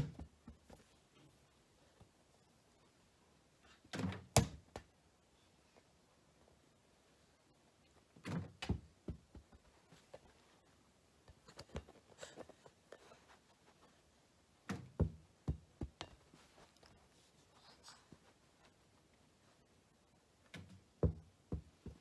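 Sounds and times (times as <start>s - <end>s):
rubber ball thudding on floor: 14.7s - 16.2s.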